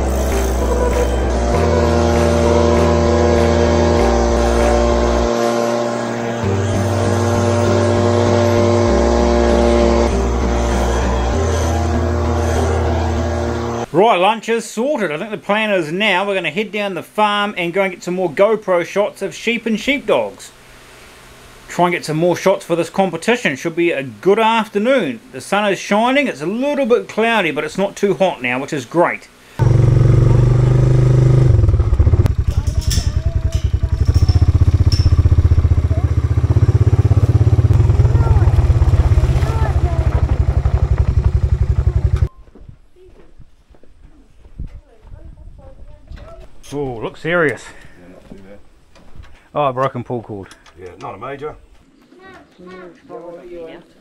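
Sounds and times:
leaf blower running: 0:00.0 - 0:13.9, 0:29.6 - 0:42.3.

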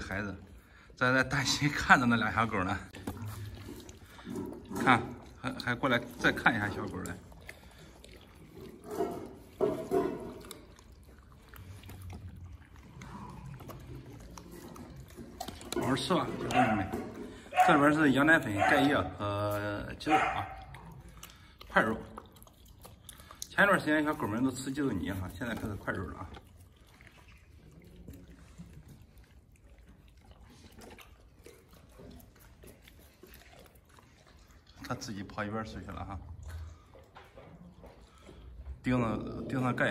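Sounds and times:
puppies lapping milk: 0:00.0 - 0:39.9
short sounds from dogs: 0:20.1 - 0:20.8.

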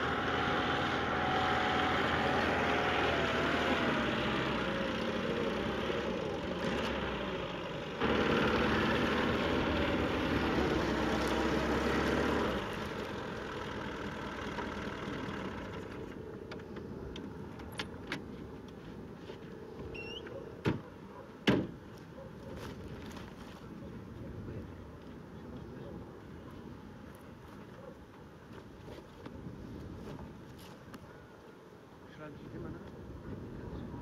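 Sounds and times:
car engine driving on dirt: 0:00.0 - 0:20.0.

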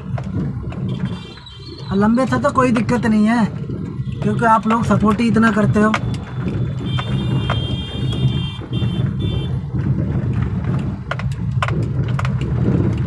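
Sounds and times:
engine and road rumble: 0:00.0 - 0:13.0.

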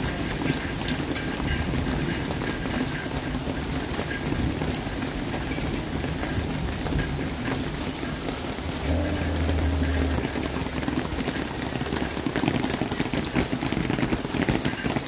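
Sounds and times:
raindrops ticking on surfaces: 0:00.0 - 0:15.0
steady rain falling: 0:00.0 - 0:15.0
brief low hum: 0:08.6 - 0:11.9.

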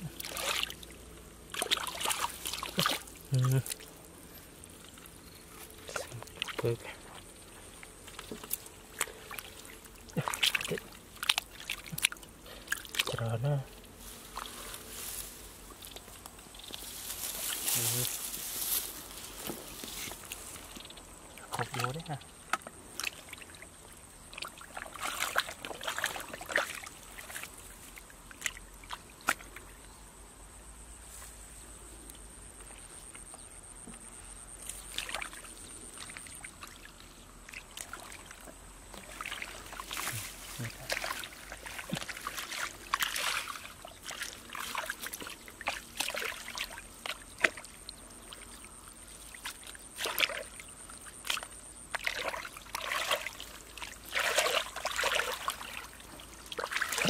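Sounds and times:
hands sloshing in muddy water: 0:00.0 - 0:13.4, 0:19.8 - 0:29.6, 0:34.7 - 0:57.0
mud squelches: 0:00.0 - 0:30.0, 0:32.1 - 0:57.0.

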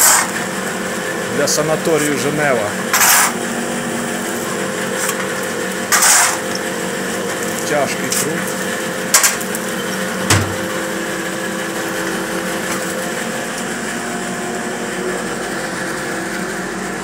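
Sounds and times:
shovel striking: 0:00.0 - 0:00.3, 0:02.9 - 0:03.4, 0:05.9 - 0:06.4
boiler room machinery humming: 0:00.0 - 0:17.0.

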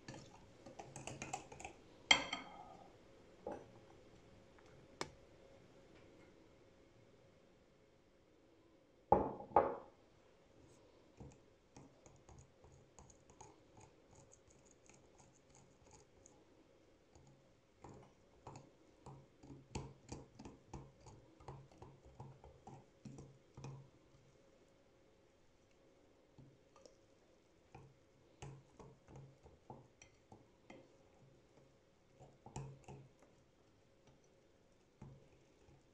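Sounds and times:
faint steady hum: 0:00.0 - 0:35.9
food preparation taps and clicks: 0:17.2 - 0:23.8, 0:32.2 - 0:33.3.

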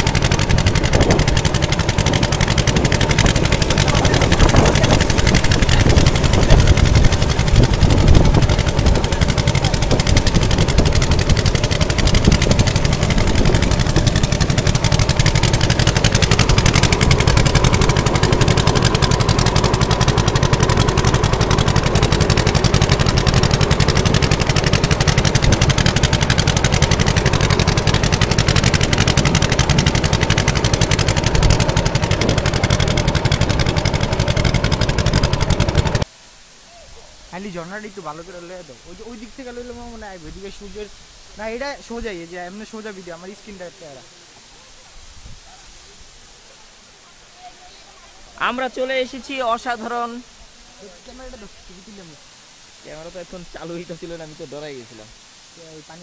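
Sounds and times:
motorboat engine running: 0:00.0 - 0:36.1.

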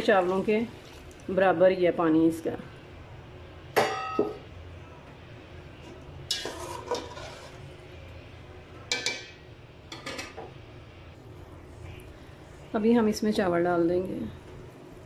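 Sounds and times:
spatula stirring stock in pot: 0:06.3 - 0:07.7.

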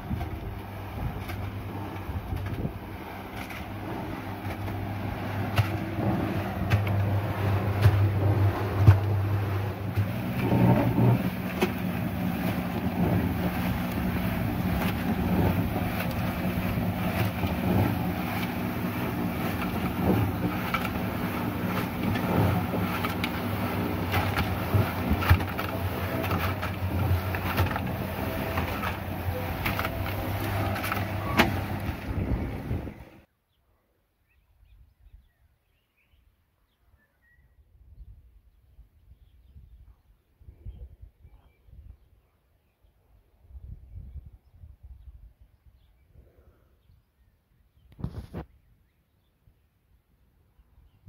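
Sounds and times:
concrete mixer motor hum: 0:00.0 - 0:33.3.

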